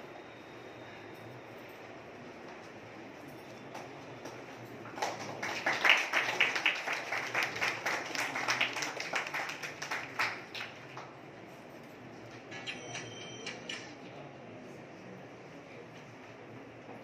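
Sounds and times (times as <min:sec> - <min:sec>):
hands clapping: 0:03.7 - 0:11.2.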